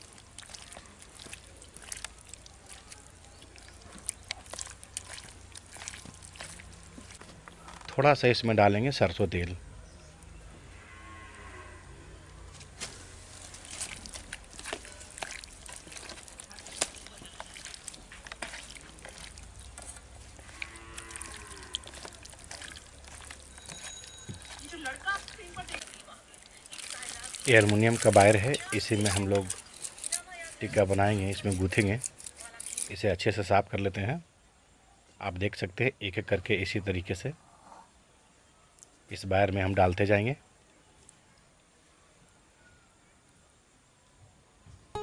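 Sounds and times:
wet squelching of meat: 0:00.0 - 0:07.9, 0:12.8 - 0:32.9
cow mooing: 0:10.6 - 0:12.4, 0:20.4 - 0:22.8.

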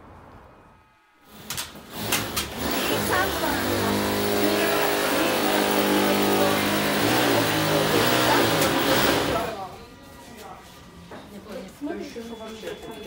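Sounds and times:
motor-like hum: 0:00.8 - 0:09.6.

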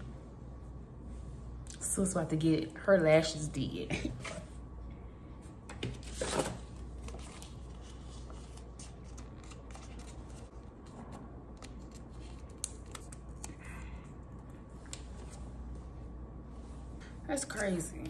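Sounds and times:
paper strip rustling: 0:06.1 - 0:10.6.

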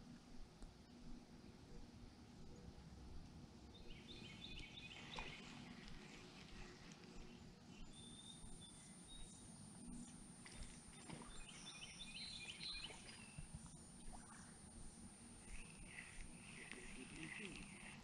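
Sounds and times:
faint bird calls: 0:03.7 - 0:18.0
thin high whine: 0:05.0 - 0:18.0.

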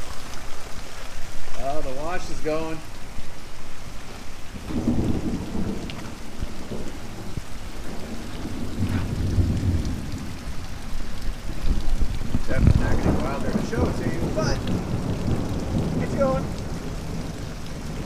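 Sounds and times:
heavy rain pouring: 0:00.0 - 0:18.0
thunder rumbling: 0:04.5 - 0:18.0.

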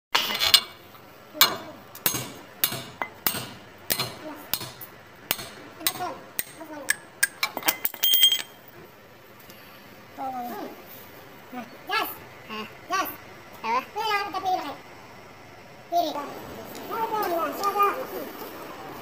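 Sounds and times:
metal clinks and ringing: 0:06.9 - 0:08.7.

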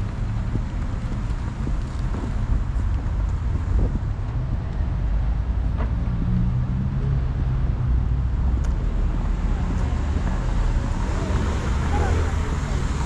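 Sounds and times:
low engine hum: 0:00.0 - 0:13.0
vehicles passing: 0:00.0 - 0:13.0.

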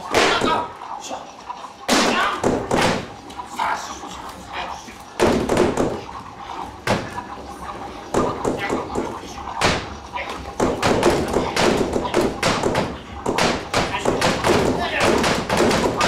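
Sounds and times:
objects thumping on stage floor: 0:01.9 - 0:03.2, 0:05.2 - 0:06.1, 0:10.6 - 0:16.0.

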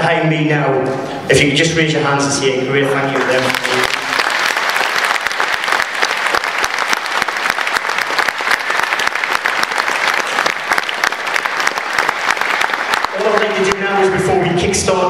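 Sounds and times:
audience applauding: 0:02.9 - 0:14.3.

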